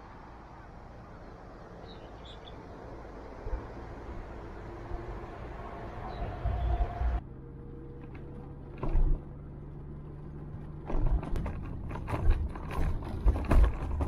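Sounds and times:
vehicle hum: 0.0 - 14.0
rattles and knocks over paving: 8.0 - 14.0.

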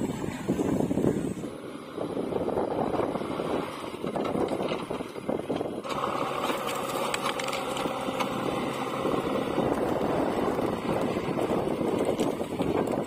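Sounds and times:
diesel engine running under load: 0.0 - 13.0
brush cracking: 5.9 - 13.0.

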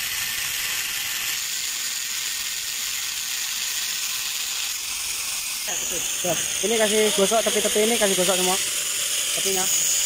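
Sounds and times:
angle grinder grinding metal: 5.6 - 10.0.

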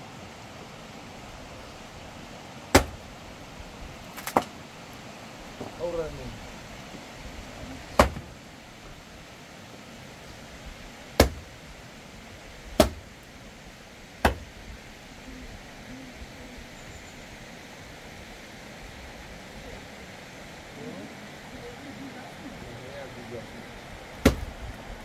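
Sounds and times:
background hiss: 0.0 - 25.0
sharp knocks: 2.7 - 3.0, 8.0 - 8.3, 11.2 - 11.4, 12.8 - 13.1, 14.2 - 14.5, 24.2 - 24.5.

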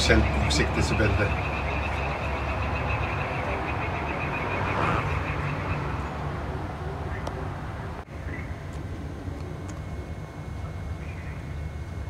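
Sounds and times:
frogs trilling: 0.0 - 7.3.

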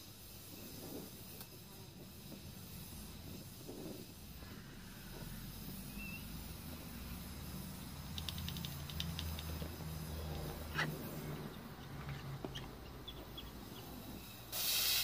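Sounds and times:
compressor humming: 1.6 - 15.0
faint ticks: 8.1 - 9.7.

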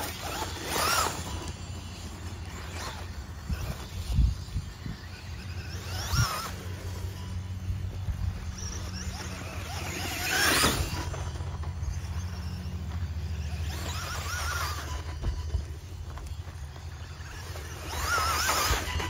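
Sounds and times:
electric motor whine: 0.0 - 19.0.

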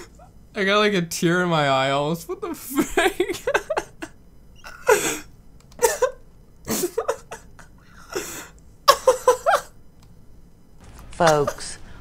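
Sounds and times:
man laughing breathlessly: 2.9 - 9.7.

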